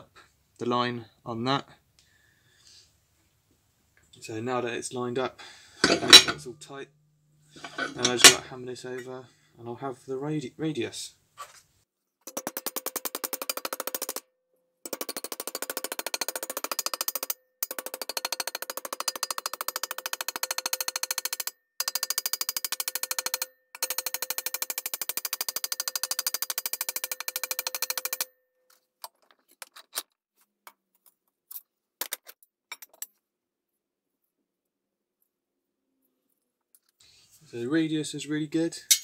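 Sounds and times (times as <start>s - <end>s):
clicks and knocks of metal handled: 5.8s - 6.5s, 7.6s - 8.5s, 23.1s - 33.2s
hammer striking ringing sheet metal: 5.8s - 6.5s, 7.6s - 8.5s.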